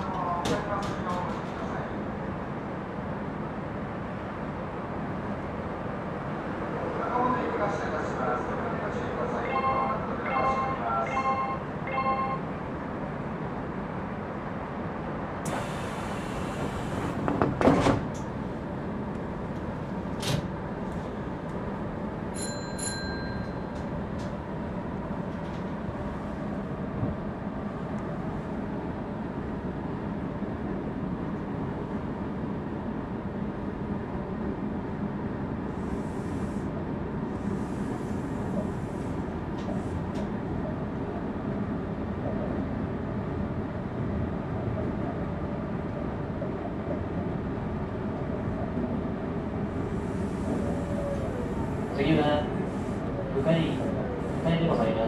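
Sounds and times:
train equipment hum: 0:00.0 - 0:55.0
train pulling away: 0:15.4 - 0:17.3
sliding doors closing: 0:15.4 - 0:18.4
hiss of air: 0:15.5 - 0:17.2, 0:35.7 - 0:36.7, 0:37.3 - 0:40.0, 0:49.8 - 0:51.8.

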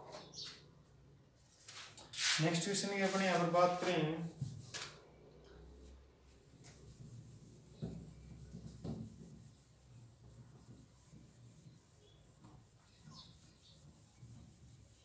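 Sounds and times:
cloth rubbing on whiteboard: 0:05.8 - 0:15.0.

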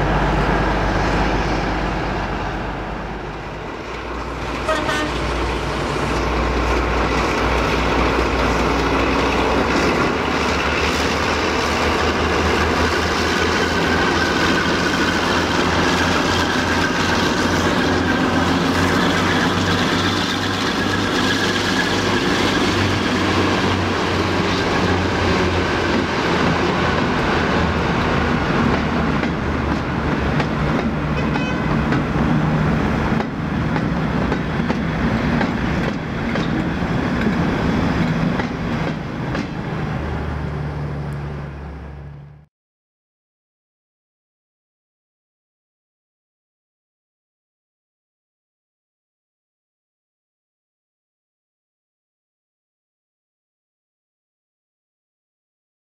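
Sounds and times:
wheel clatter over rail joints: 0:33.0 - 0:39.8.

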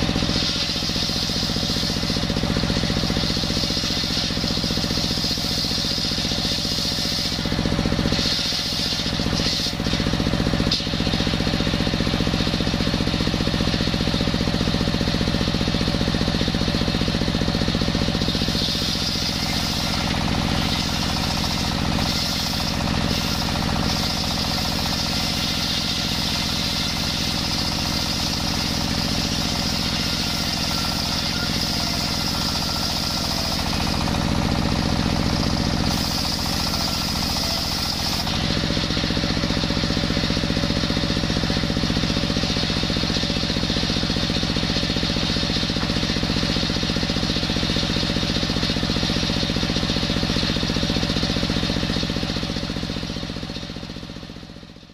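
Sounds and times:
circular saw blade screaming: 0:00.0 - 0:10.8, 0:17.8 - 0:40.4
diesel engine running: 0:00.0 - 0:54.9.

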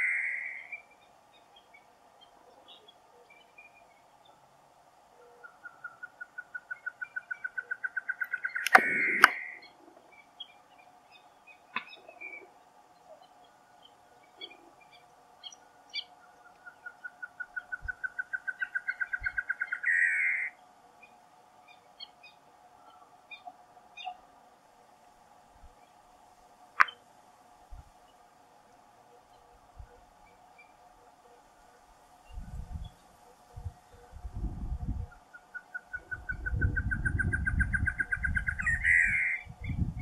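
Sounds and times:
bird singing hooting notes: 0:00.0 - 0:04.5, 0:05.2 - 0:24.3, 0:32.2 - 0:40.0
faint drone: 0:00.0 - 0:40.0
sharp clicks: 0:08.2 - 0:09.5.

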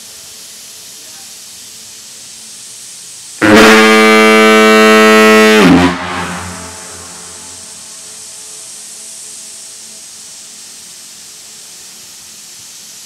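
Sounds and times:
low foghorn blast: 0:03.4 - 0:08.6.

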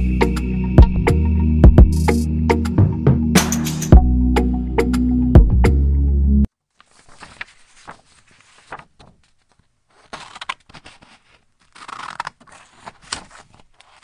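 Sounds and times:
background music: 0:00.0 - 0:06.5.

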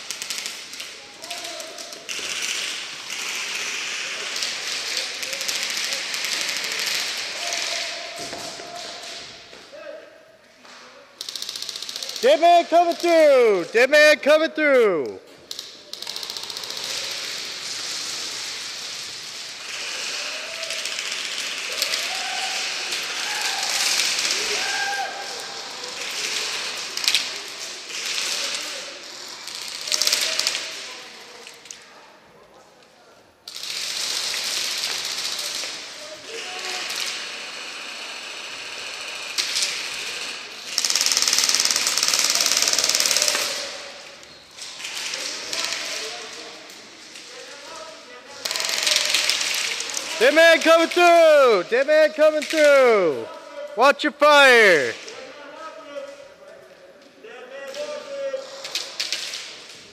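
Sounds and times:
airsoft guns firing: 0:00.0 - 0:09.2, 0:11.2 - 0:13.5, 0:15.5 - 0:24.6, 0:33.5 - 0:35.8, 0:38.7 - 0:43.8, 0:48.4 - 0:52.8.

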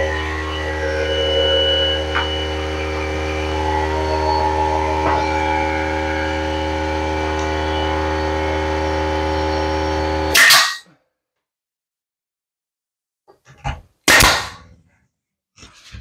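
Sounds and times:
air compressor motor humming: 0:00.0 - 0:10.3.

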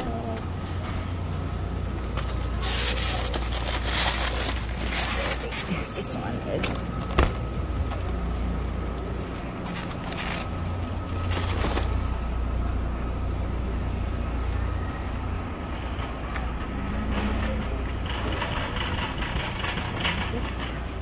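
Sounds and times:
shopping cart rumbling on floor: 0:02.1 - 0:12.2, 0:14.6 - 0:21.0
rustling: 0:02.2 - 0:08.1.

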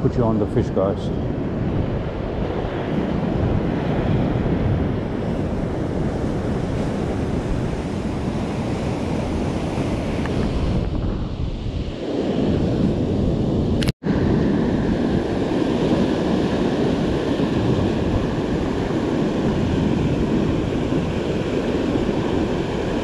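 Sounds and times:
ocean surf breaking: 0:00.0 - 0:23.0
wind buffeting microphone: 0:00.0 - 0:23.0.

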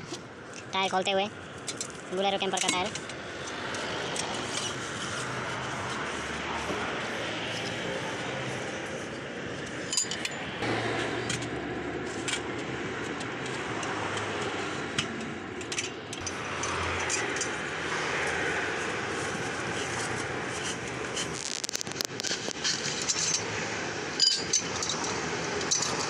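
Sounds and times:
steady background noise: 0:00.0 - 0:26.0.

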